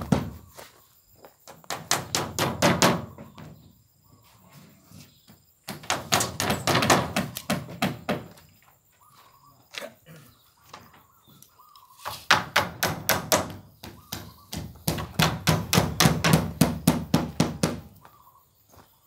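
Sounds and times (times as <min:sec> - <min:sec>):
hammer striking wooden frame: 0:01.7 - 0:03.2, 0:05.7 - 0:08.3, 0:12.3 - 0:17.9.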